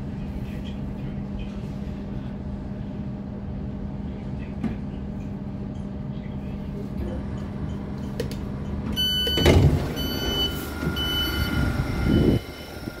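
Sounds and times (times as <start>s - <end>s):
low hum of standing train: 0.0s - 13.0s
train doors sliding open: 8.2s - 13.0s
high warning beep: 9.0s - 12.9s.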